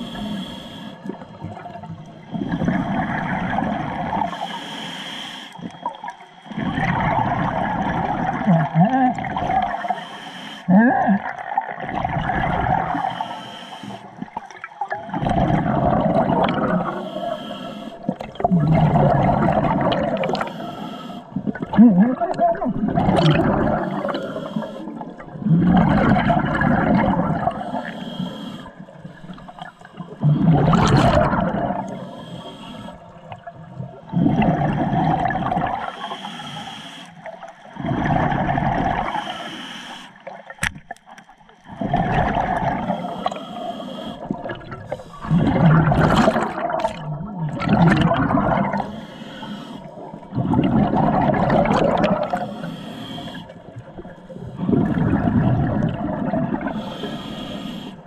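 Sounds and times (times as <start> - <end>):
regulator inhale hiss: 0.0 - 1.2, 4.3 - 5.7, 9.8 - 10.7, 12.9 - 14.3, 16.8 - 18.1, 20.2 - 21.4, 23.8 - 25.1, 27.6 - 30.2, 31.8 - 33.1, 35.9 - 37.4, 39.0 - 40.3, 42.8 - 45.3, 48.8 - 50.2, 52.3 - 54.7, 56.7 - 58.0
exhaled bubbles rushing: 1.0 - 4.4, 5.6 - 9.9, 10.7 - 13.2, 14.2 - 17.1, 17.9 - 20.6, 21.3 - 27.8, 29.0 - 32.0, 33.2 - 36.0, 37.8 - 39.3, 41.7 - 43.4, 44.2 - 49.0, 49.9 - 52.6, 53.6 - 56.9.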